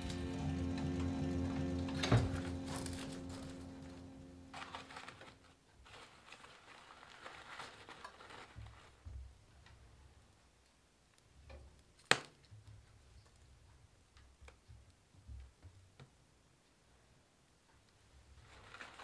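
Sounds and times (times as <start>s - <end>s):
wood rustling and scraping: 1.0s - 9.0s.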